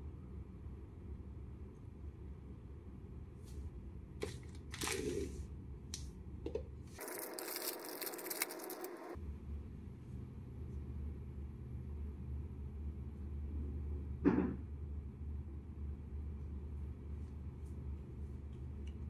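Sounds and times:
plastic wrapper crinkling: 4.2s - 5.4s, 7.0s - 9.2s.

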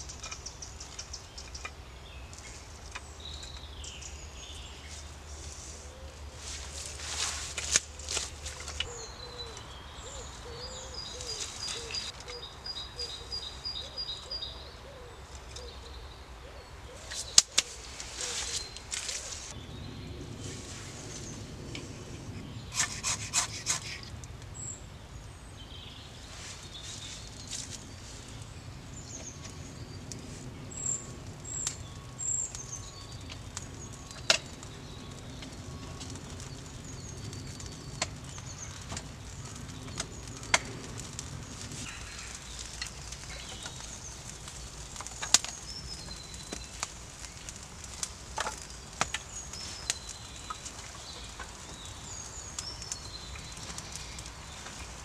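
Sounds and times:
wood fire crackling and popping: 0.0s - 14.4s, 17.0s - 55.0s
small birds chirping: 0.0s - 55.0s.

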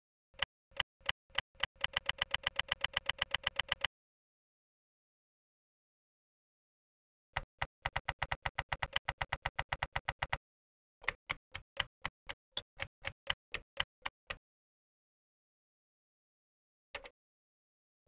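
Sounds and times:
keyboard typing clicks: 0.4s - 3.9s.

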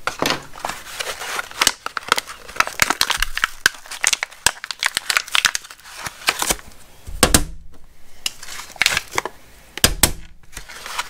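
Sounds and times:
blister pack tearing and crinkling: 0.0s - 6.8s, 8.3s - 9.4s, 10.4s - 11.0s.

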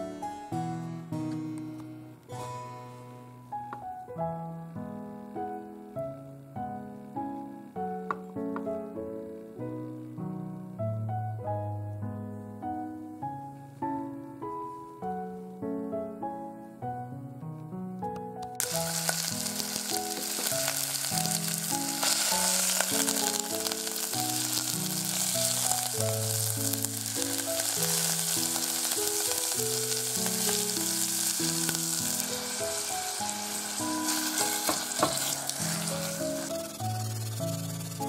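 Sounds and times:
background music: 0.0s - 38.0s
meat sizzling in a pan: 18.6s - 38.0s
spatula stirring: 32.2s - 38.0s.

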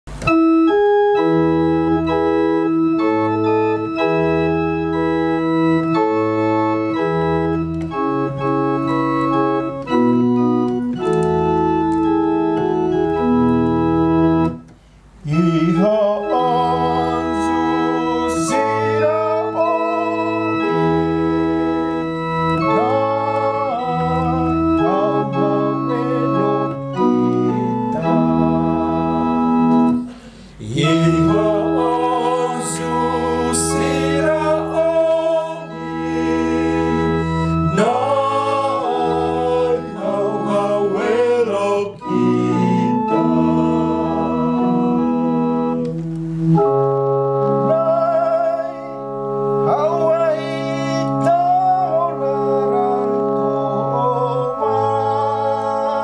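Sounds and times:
electronic keyboard organ chords: 0.0s - 56.0s
vibrato melody line: 15.3s - 56.0s.

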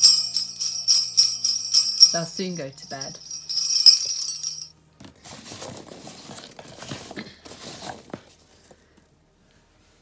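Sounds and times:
hand rummaging through packing peanuts: 5.2s - 8.1s.

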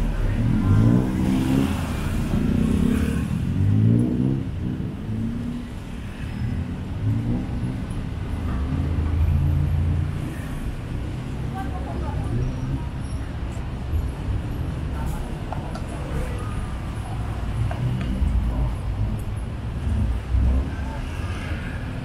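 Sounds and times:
low traffic rumble: 0.0s - 22.0s
vehicles accelerating past: 0.0s - 22.0s.

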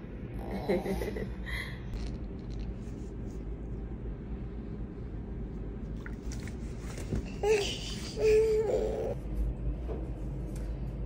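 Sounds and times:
low room hum: 0.0s - 11.0s
toddler vocalizing: 7.4s - 9.2s.

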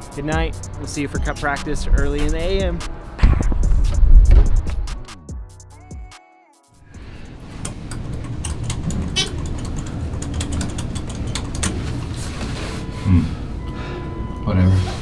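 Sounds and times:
elevator rumble: 7.0s - 15.0s.

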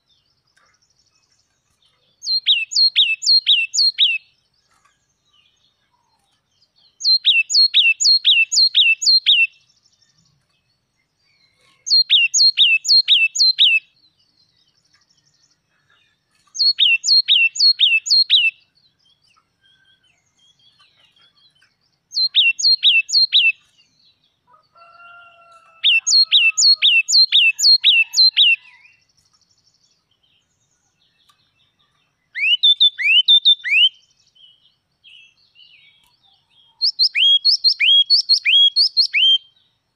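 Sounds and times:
bird singing: 0.0s - 39.9s.

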